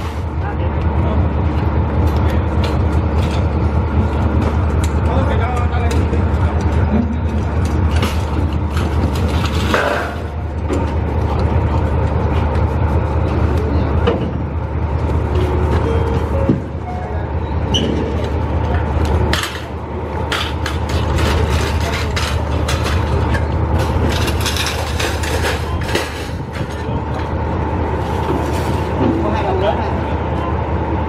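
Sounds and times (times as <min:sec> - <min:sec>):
low train machine drone: 0:00.0 - 0:31.0
boxes and trolleys clattering: 0:02.1 - 0:17.0, 0:19.3 - 0:27.3, 0:28.0 - 0:29.8.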